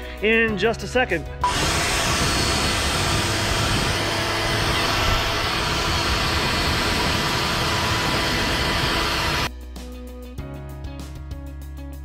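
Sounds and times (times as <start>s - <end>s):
leaf blower running: 1.4s - 9.5s.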